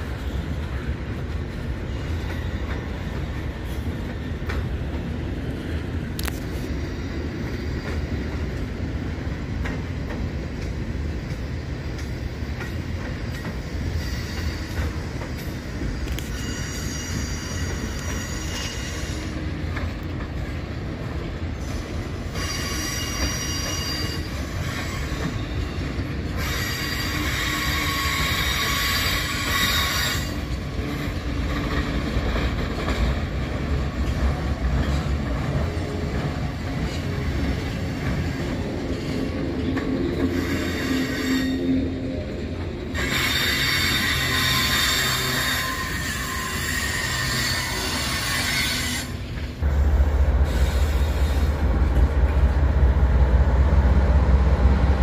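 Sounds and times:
train wheels rumbling on rail: 0.0 - 55.0
high-pitched wheel squeal: 16.1 - 19.3, 22.4 - 25.8, 26.4 - 30.4, 43.0 - 49.2.

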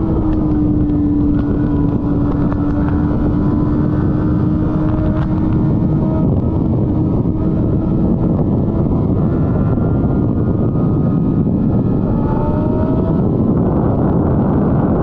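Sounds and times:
motorcycle engine rumbling: 0.0 - 15.0.

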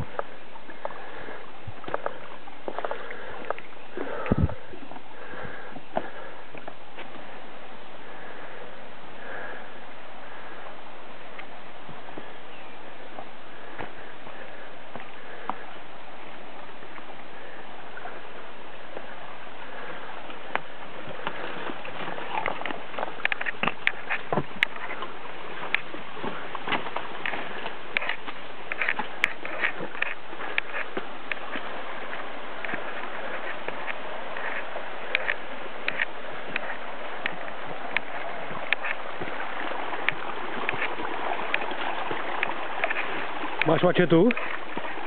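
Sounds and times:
footsteps on rocky trail: 0.0 - 7.4, 13.2 - 15.8, 19.7 - 45.0.

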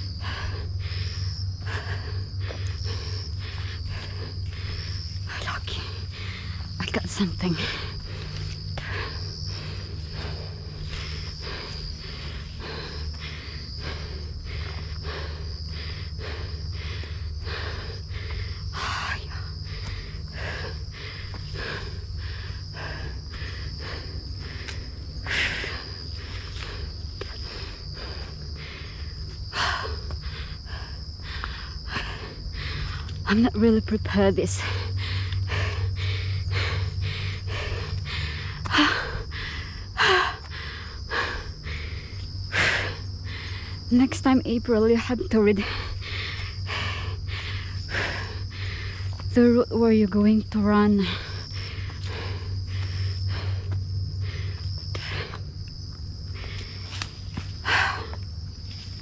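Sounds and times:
loud gasping breaths: 0.0 - 33.3, 34.6 - 43.9, 45.6 - 49.3, 51.0 - 55.6
person breathing hard: 0.0 - 33.4, 34.4 - 43.9, 45.0 - 49.3, 50.7 - 59.0
crickets chirring: 0.0 - 59.0
footsteps on dirt trail: 7.4 - 13.8, 48.9 - 49.4, 51.4 - 59.0.

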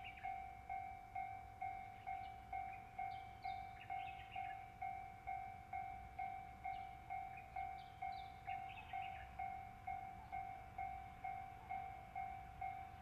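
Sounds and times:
level-crossing warning bell: 0.0 - 13.0.

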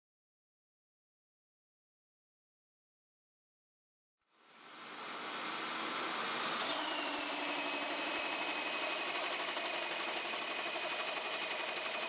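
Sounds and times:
high machine whine: 4.6 - 12.0
hole saw cutting metal: 4.8 - 12.0.

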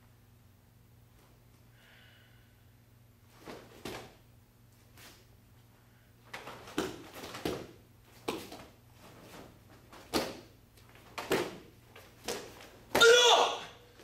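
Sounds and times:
bare feet slapping on mats: 3.3 - 4.2, 6.3 - 13.2.

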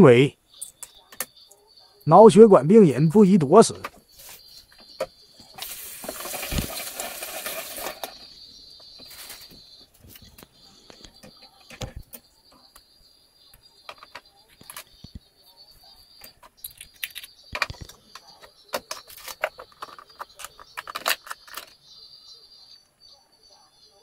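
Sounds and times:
plastic packet crinkling: 5.6 - 8.1.

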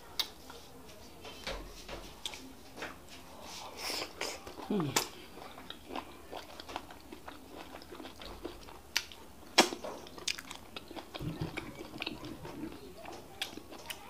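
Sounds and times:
chewing and smacking: 4.2 - 14.0.

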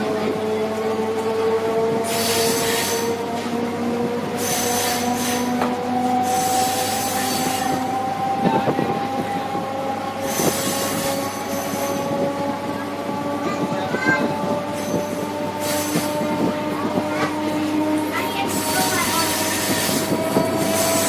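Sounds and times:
traction motors whining: 0.0 - 21.0.

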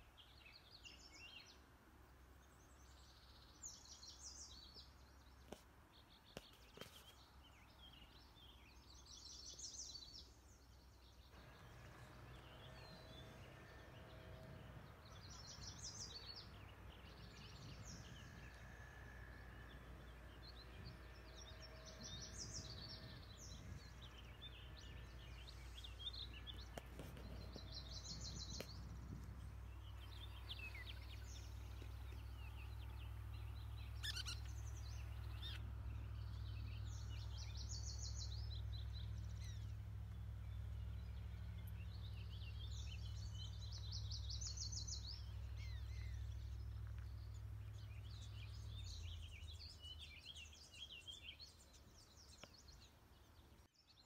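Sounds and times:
songbirds singing: 0.0 - 54.0
low steady rumble: 7.7 - 53.7.

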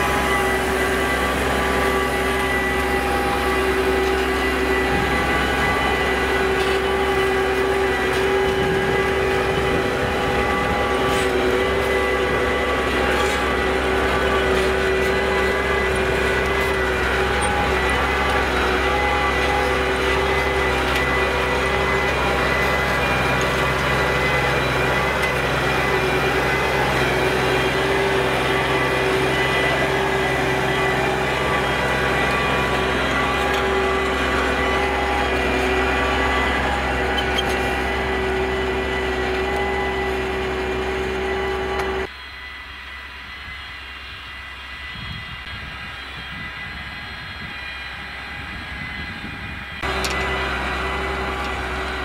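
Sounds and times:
tractor diesel engine running: 0.0 - 52.0.

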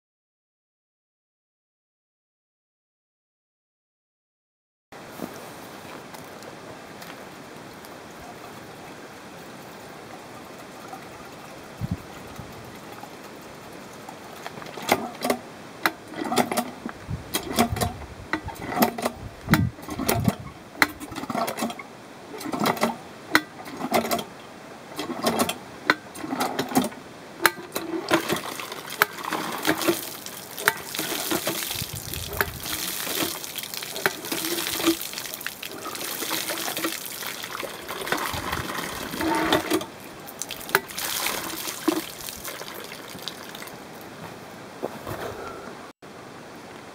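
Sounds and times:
metal hand pump clanking: 14.7 - 21.8, 22.4 - 24.3, 25.0 - 42.5
water gushing and splashing: 26.2 - 44.2.

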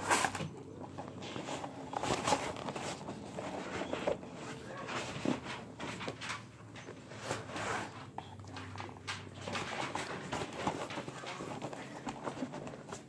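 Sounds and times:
notebooks rustling in fabric backpack: 0.0 - 6.2, 9.2 - 13.0.

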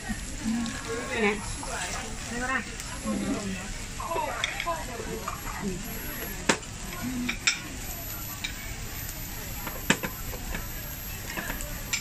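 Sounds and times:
meat sizzling on a grill plate: 0.0 - 12.0.

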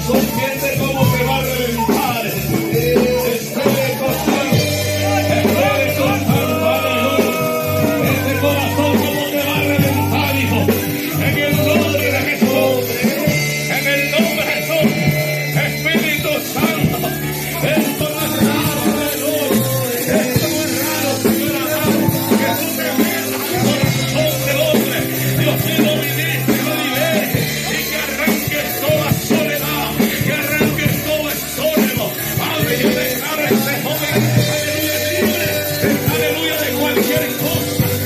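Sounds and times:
worship music with singing: 0.0 - 38.0.

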